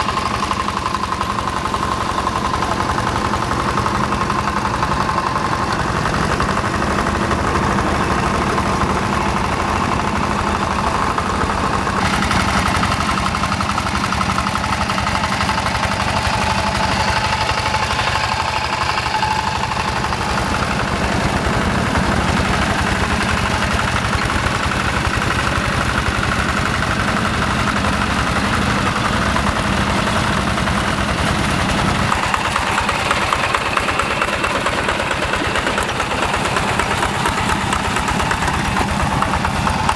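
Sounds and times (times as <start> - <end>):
diesel engine running: 0.0 - 39.9.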